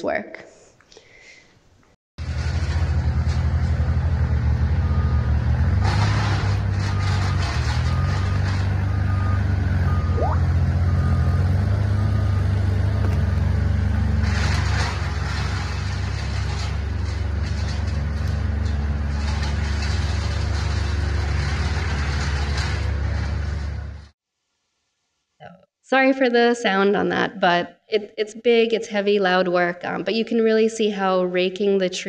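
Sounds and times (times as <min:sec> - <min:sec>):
wheel loader engine under load: 0:02.2 - 0:24.1
reversing alarm beeps: 0:07.9 - 0:12.5
trees dragged over forest floor: 0:13.1 - 0:24.0.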